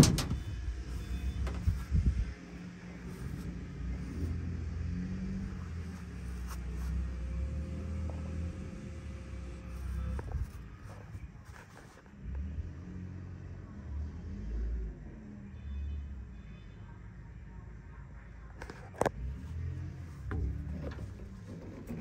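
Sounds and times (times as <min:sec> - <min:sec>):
truck engine idling: 0:00.0 - 0:12.0, 0:19.1 - 0:22.0.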